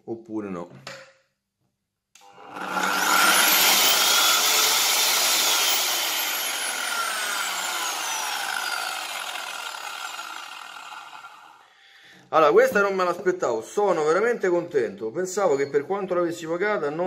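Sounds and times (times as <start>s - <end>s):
circular saw whine: 2.2s - 11.6s.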